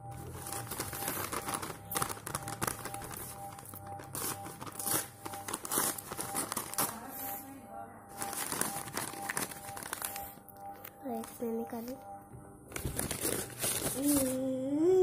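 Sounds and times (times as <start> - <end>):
faint background music: 0.0 - 15.0
paper crinkling and tearing: 0.2 - 7.4, 8.2 - 10.4, 12.7 - 14.5.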